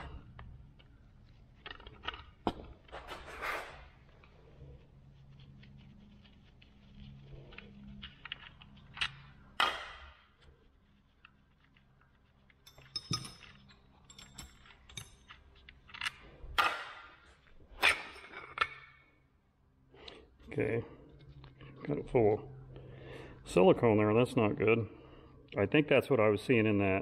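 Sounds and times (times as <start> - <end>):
metal parts clicking and clinking: 1.5 - 3.1, 12.4 - 17.2, 17.8 - 19.2.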